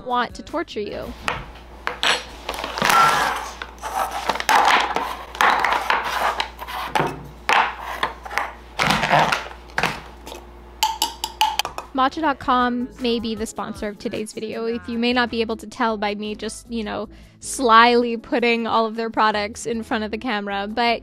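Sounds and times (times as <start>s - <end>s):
spoon scraping bowls: 1.1s - 11.9s.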